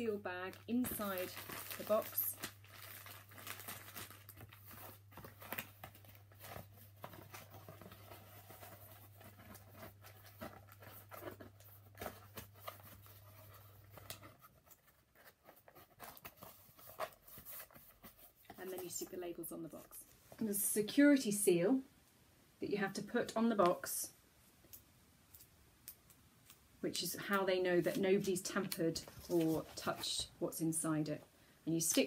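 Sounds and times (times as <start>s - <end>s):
plastic bag rustling: 0.2s - 19.2s.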